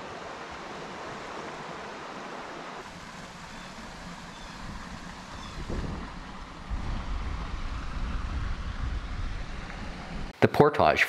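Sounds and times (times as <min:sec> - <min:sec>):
waterfall and rapids rushing: 0:00.0 - 0:10.4.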